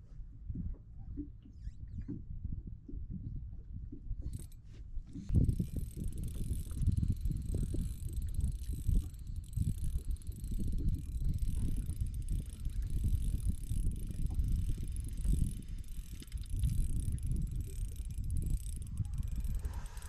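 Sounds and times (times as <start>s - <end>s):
wind buffeting microphone: 0.0s - 20.0s
fishing reel whirring and ticking: 4.2s - 20.0s.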